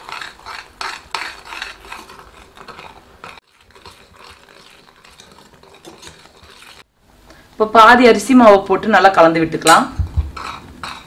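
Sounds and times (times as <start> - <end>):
ladle scraping steel pan: 0.0 - 6.8.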